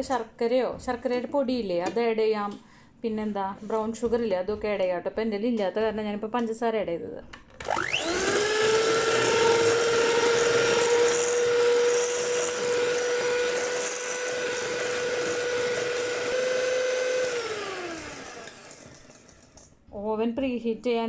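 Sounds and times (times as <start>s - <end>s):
electric hand mixer whirring: 7.6s - 19.7s.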